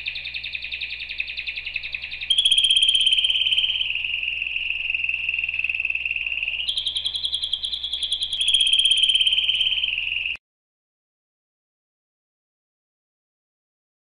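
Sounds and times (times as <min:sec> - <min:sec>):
canary trilling: 0:00.0 - 0:10.4.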